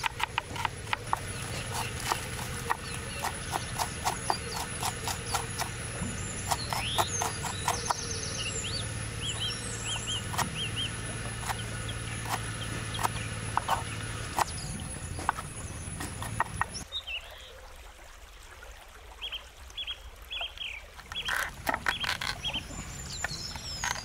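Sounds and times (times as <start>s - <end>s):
knife chopping on wooden board: 0.0s - 8.1s, 10.3s - 16.8s
birds chirping: 0.0s - 17.6s, 19.2s - 24.0s.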